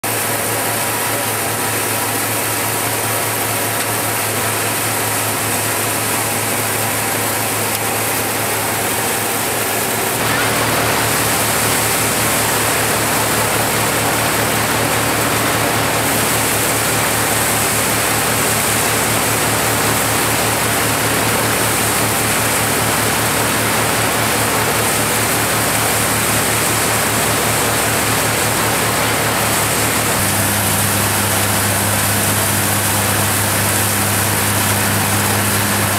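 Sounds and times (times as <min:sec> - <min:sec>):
thresher running: 0:00.0 - 0:35.9.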